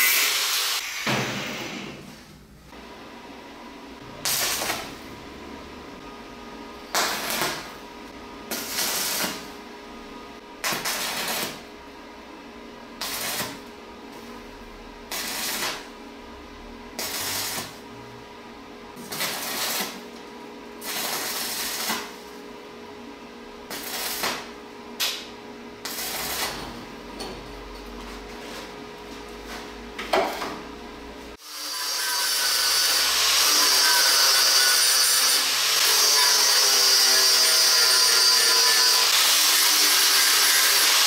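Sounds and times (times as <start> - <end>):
welding arc crackling: 4.2 - 5.2, 6.9 - 7.8, 8.5 - 9.6, 10.6 - 11.7, 13.0 - 13.7, 15.1 - 16.0, 16.9 - 17.9, 19.0 - 20.2, 20.8 - 22.4, 23.7 - 26.7, 31.4 - 41.0.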